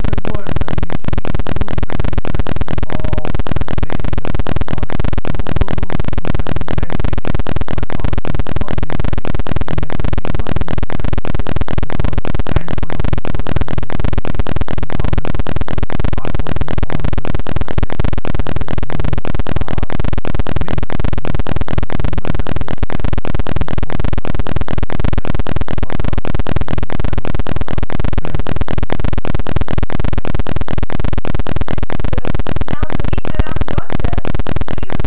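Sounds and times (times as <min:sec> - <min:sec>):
distorted crackling noise: 0:00.0 - 0:35.0.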